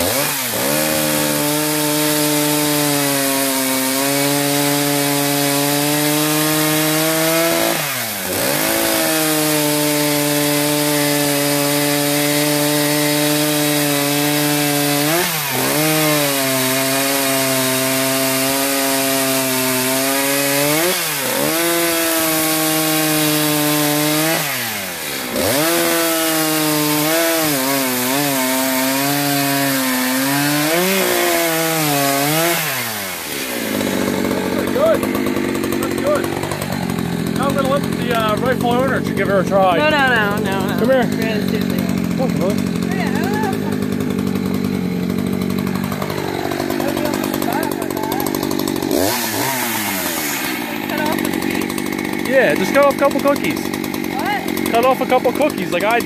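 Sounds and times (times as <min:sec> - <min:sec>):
chainsaw cutting through log: 0:00.0 - 0:56.0.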